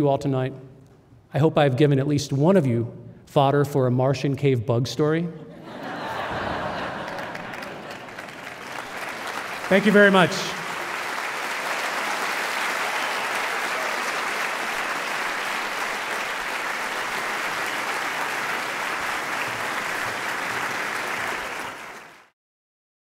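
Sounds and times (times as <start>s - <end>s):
audience applauding: 6.0s - 22.4s.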